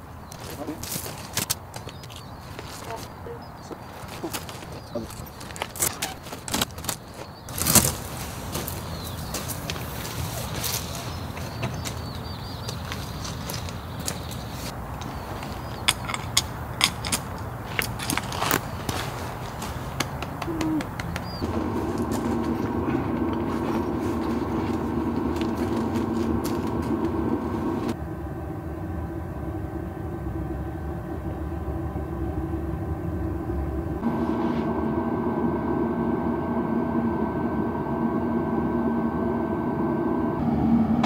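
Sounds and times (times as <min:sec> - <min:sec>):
car engine drone: 0:00.0 - 0:41.0
road rumble: 0:00.0 - 0:41.0.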